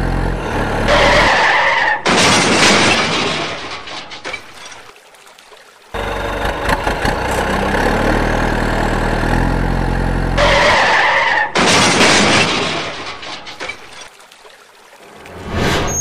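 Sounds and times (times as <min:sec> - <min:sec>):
truck engine droning: 0:00.0 - 0:02.0, 0:06.0 - 0:11.6
harsh skidding screech: 0:00.5 - 0:02.0, 0:10.4 - 0:11.6.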